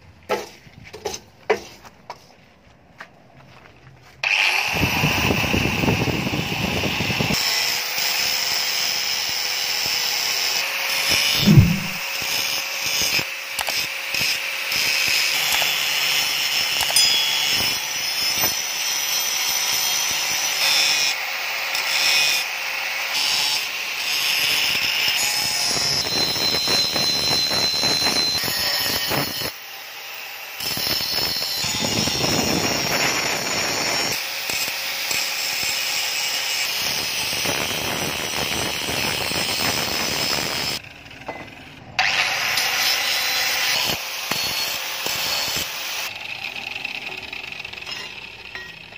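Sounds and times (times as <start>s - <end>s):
angle grinder cutting steel: 4.2s - 48.9s
loud thump: 11.4s - 12.0s.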